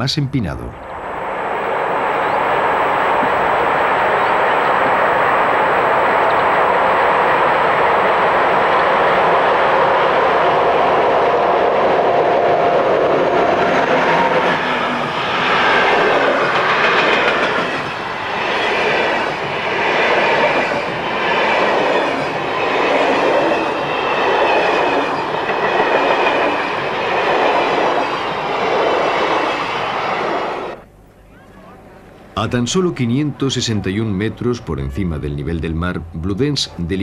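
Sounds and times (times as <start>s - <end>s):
passenger train passing: 0.0s - 30.9s, 32.3s - 37.0s.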